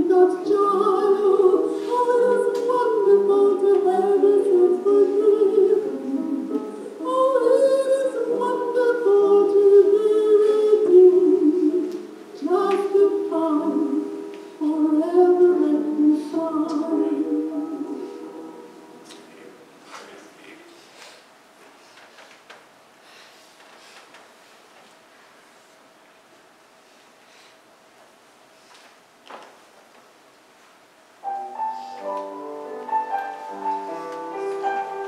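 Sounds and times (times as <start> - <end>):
music with singing: 0.0 - 19.4.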